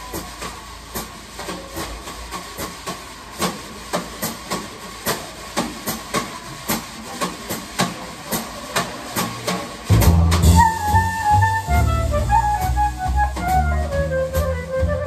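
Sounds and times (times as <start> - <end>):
jazz drum kit played softly: 0.0 - 15.0
faint upright bass: 9.2 - 15.0.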